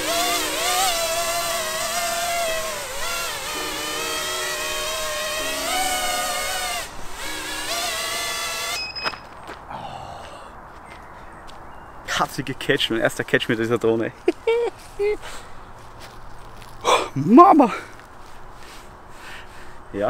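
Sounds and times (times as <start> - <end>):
background music: 0.0 - 8.1
drone propellers whining: 0.0 - 9.2.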